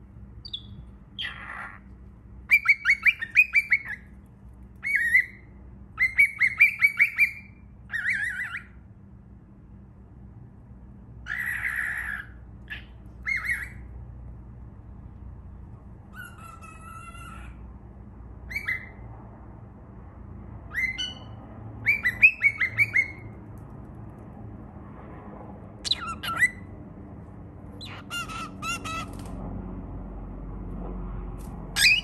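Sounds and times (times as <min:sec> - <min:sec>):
bird chirping calls: 0:00.4 - 0:04.1, 0:04.8 - 0:08.8, 0:11.3 - 0:13.9, 0:18.5 - 0:19.0, 0:20.7 - 0:23.3, 0:25.8 - 0:26.7, 0:27.8 - 0:29.2, 0:31.8 - 0:32.0.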